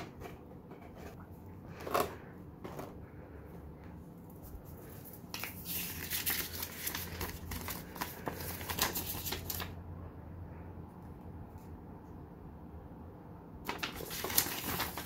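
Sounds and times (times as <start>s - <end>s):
paper rustling and crackling: 4.4s - 9.8s, 13.6s - 15.0s.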